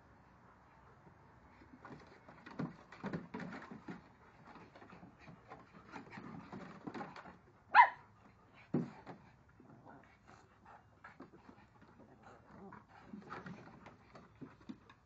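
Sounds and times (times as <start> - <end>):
paws scrabbling on wooden boards: 0.7 - 15.0
dog barking: 7.7 - 8.0.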